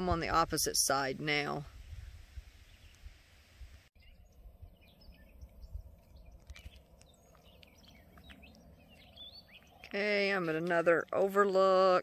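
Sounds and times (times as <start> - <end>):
low rumble: 1.7 - 9.8
birds chirping: 4.0 - 12.0.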